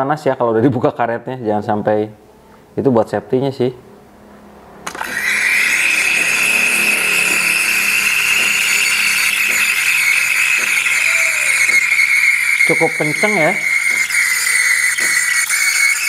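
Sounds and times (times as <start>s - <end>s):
high screech: 3.8s - 16.0s
steam wand hissing into milk: 4.9s - 16.0s.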